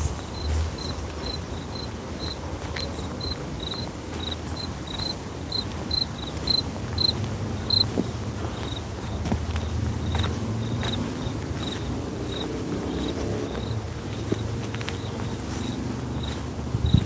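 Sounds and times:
cricket chirping: 0.0 - 7.9, 8.5 - 17.0.

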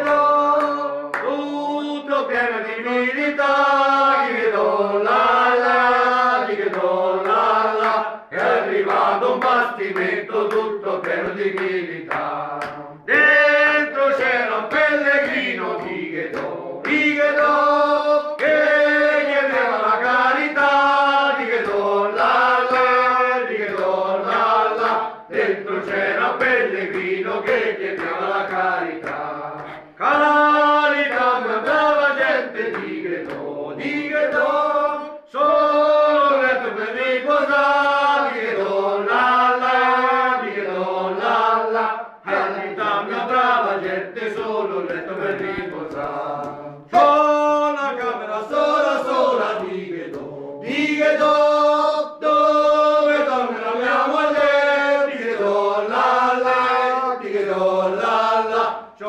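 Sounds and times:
group singing chant-like song: 0.0 - 59.0.

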